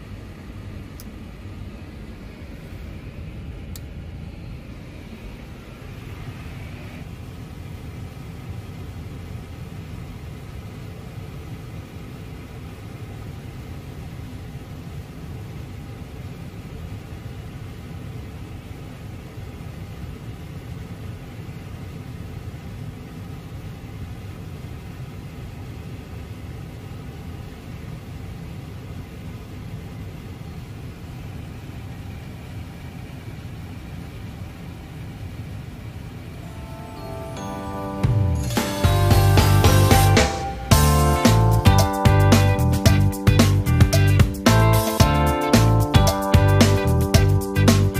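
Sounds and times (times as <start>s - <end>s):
low rumble of air and machinery: 0.0s - 47.9s
faint even hum of tones: 36.0s - 41.2s.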